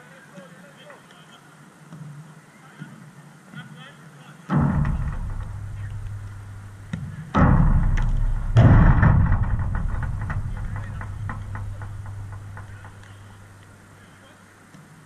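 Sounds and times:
ball thudding against mesh fence: 0:04.5 - 0:13.7
fence rattling: 0:04.5 - 0:13.8.

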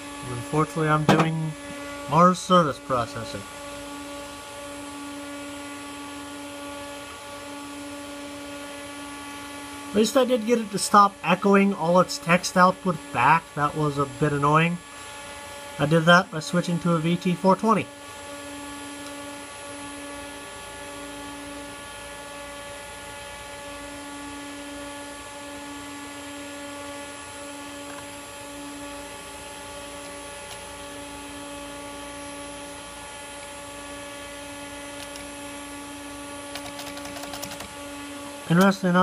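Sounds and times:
computer electrical hum: 0:00.0 - 0:39.0
computer fan hiss: 0:33.8 - 0:35.7, 0:36.4 - 0:39.0.

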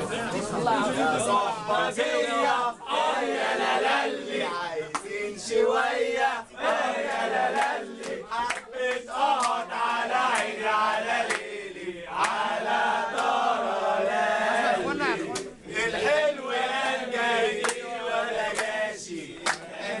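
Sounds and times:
young men chanting in unison: 0:00.5 - 0:20.0
hand claps: 0:04.9 - 0:05.1, 0:07.0 - 0:09.6, 0:10.3 - 0:10.6, 0:11.2 - 0:11.6, 0:12.2 - 0:12.5, 0:13.1 - 0:13.4, 0:15.3 - 0:15.5, 0:17.6 - 0:17.9, 0:18.5 - 0:18.8, 0:19.4 - 0:19.7.

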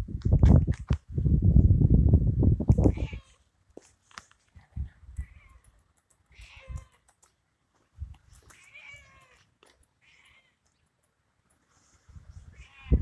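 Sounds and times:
cat meowing: 0:02.9 - 0:03.4, 0:06.3 - 0:07.0, 0:08.5 - 0:10.6, 0:12.5 - 0:13.0.

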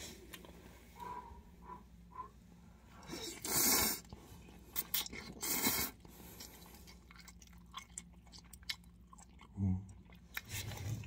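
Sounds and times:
wet chewing clicks: 0:04.7 - 0:10.8.

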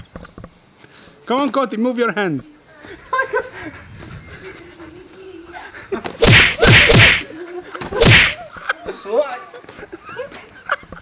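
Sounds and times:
boxing glove punches: 0:06.2 - 0:07.2, 0:08.0 - 0:08.4.

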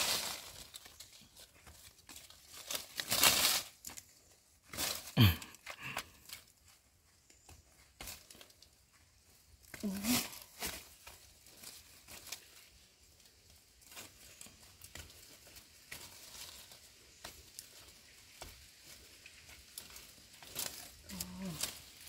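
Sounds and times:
dry leaves and twigs crackling: 0:00.0 - 0:22.0.

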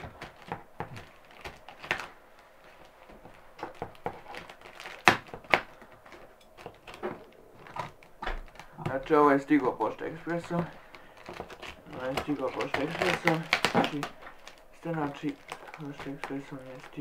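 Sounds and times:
scissors cutting packing tape: 0:03.6 - 0:07.0, 0:10.3 - 0:17.0.

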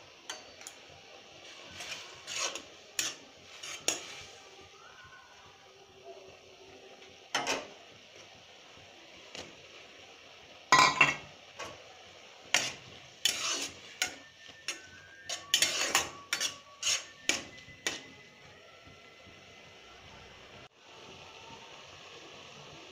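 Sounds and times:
faint steady hiss: 0:00.0 - 0:22.9
metal spoon scraping a pan: 0:01.4 - 0:04.4, 0:12.4 - 0:18.1.

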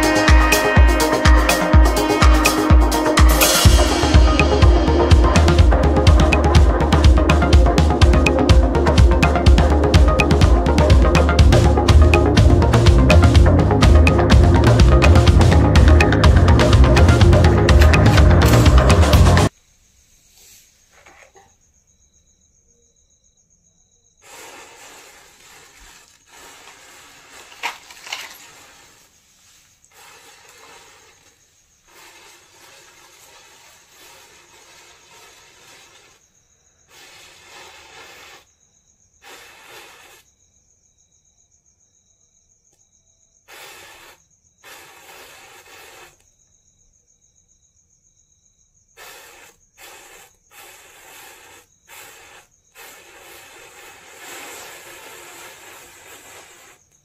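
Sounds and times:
matchsticks hissing and fizzing: 0:24.2 - 0:36.2, 0:36.9 - 0:38.5, 0:39.2 - 0:40.3, 0:43.5 - 0:46.3, 0:49.0 - 0:57.0.

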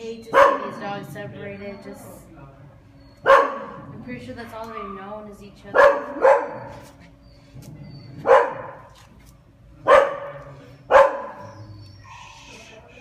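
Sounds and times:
dog barking: 0:00.3 - 0:00.8, 0:03.2 - 0:03.9, 0:05.7 - 0:07.0, 0:08.2 - 0:09.0, 0:09.8 - 0:11.8.

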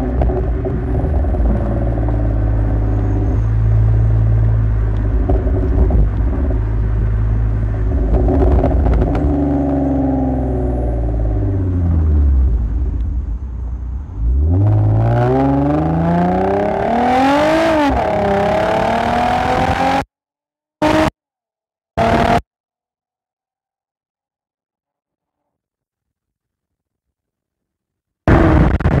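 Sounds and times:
car exhaust revving: 0:00.0 - 0:20.0, 0:22.0 - 0:22.4.

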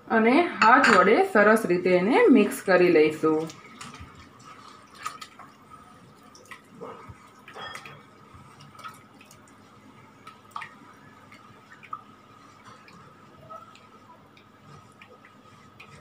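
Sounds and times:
hand squelching wet batter: 0:03.2 - 0:16.0.

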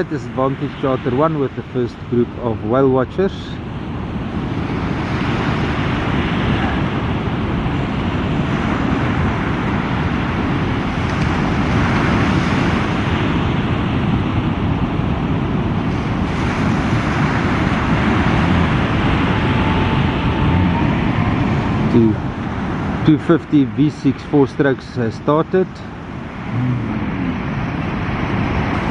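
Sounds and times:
wind on microphone: 0:00.0 - 0:23.8, 0:24.6 - 0:28.9
surf breaking: 0:15.9 - 0:28.9.

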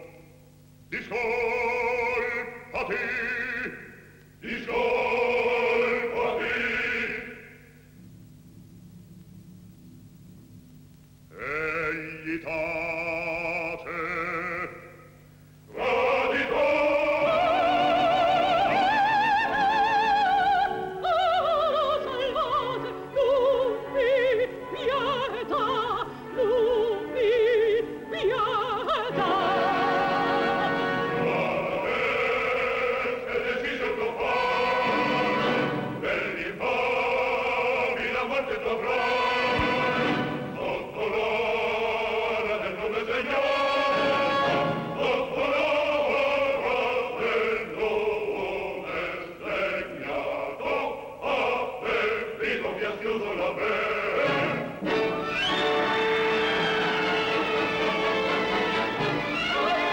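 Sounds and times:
operatic woman singing: 0:15.8 - 0:32.7
orchestra: 0:17.2 - 0:32.2, 0:34.0 - 0:36.8, 0:38.7 - 0:41.5, 0:43.2 - 0:46.4, 0:53.7 - 0:59.9.

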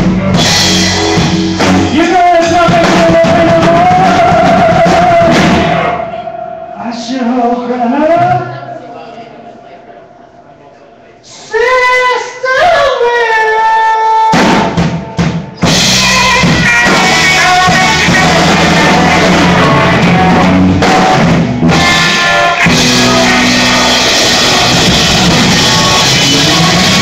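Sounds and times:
live rock band: 0:00.0 - 0:06.7, 0:13.9 - 0:27.0.

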